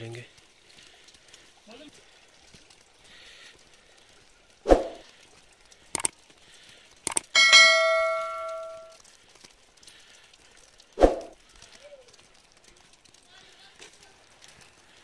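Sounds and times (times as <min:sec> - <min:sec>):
mouse click: 0:07.1 - 0:07.3
bell ding: 0:07.4 - 0:09.0.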